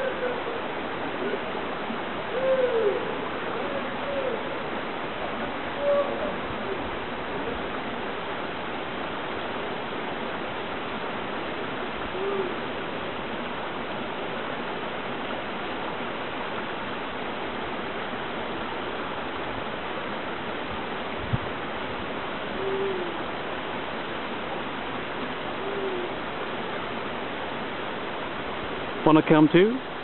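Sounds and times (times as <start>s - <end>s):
bird hooting: 0.0s - 1.6s, 2.3s - 4.7s, 5.7s - 7.7s, 12.1s - 12.8s, 22.5s - 23.3s, 25.5s - 26.2s
waterfall rushing: 0.0s - 30.0s.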